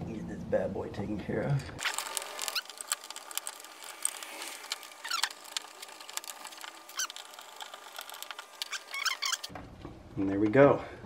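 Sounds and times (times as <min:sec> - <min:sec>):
wires squeaking through conduit: 0:01.8 - 0:09.5.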